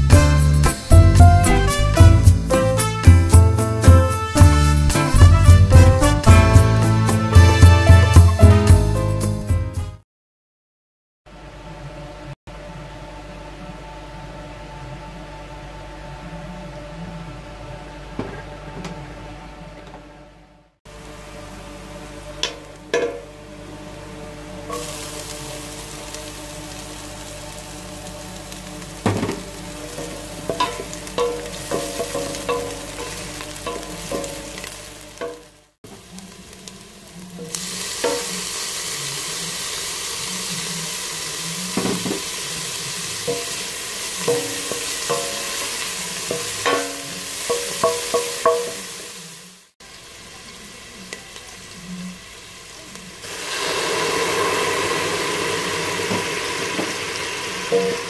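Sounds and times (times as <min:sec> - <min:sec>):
garlic and onion sizzling in oil: 0:20.9 - 0:58.0.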